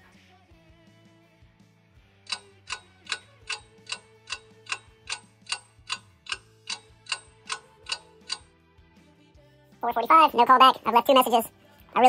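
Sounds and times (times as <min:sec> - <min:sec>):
clock ticking: 0:02.3 - 0:08.5.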